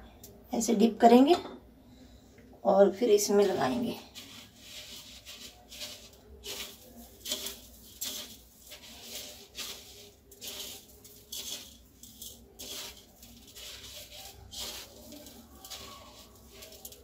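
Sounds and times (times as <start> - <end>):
cornflakes crunching and rustling: 3.7 - 17.0.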